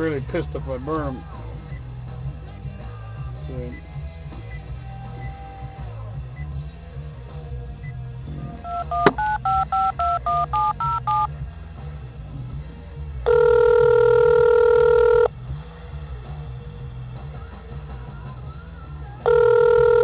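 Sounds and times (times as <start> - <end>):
phone ringback tone: 8.6 - 11.3, 13.3 - 15.3, 19.2 - 20.0
touch-tone keypad beeps: 8.7 - 11.3, 13.3 - 15.3.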